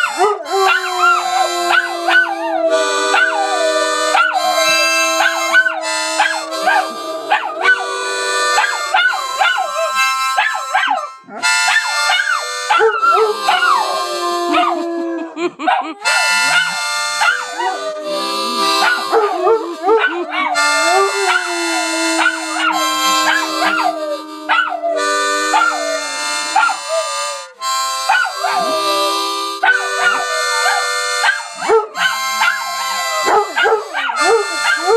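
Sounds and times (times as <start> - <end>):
dog howling: 0.0 - 15.4, 16.1 - 27.5, 28.1 - 34.9
harmonica: 0.0 - 15.4, 16.0 - 34.9.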